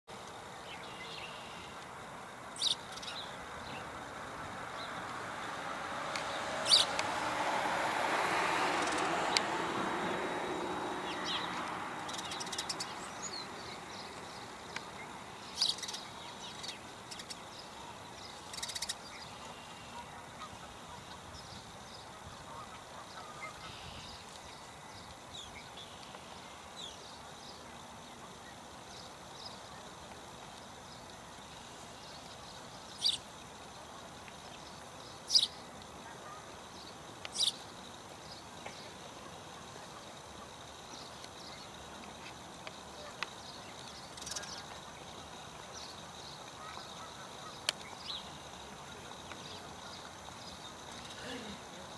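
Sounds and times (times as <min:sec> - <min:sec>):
steady background hiss: 0:00.1 - 0:51.9
sparrows chirping: 0:02.6 - 0:07.1, 0:08.6 - 0:09.5, 0:10.4 - 0:31.1, 0:31.8 - 0:33.7, 0:34.4 - 0:51.7
bird chirps and calls: 0:06.6 - 0:07.0, 0:11.1 - 0:14.2, 0:15.5 - 0:17.4, 0:18.3 - 0:20.5, 0:37.3 - 0:37.6
sharp tick: 0:08.8 - 0:09.5.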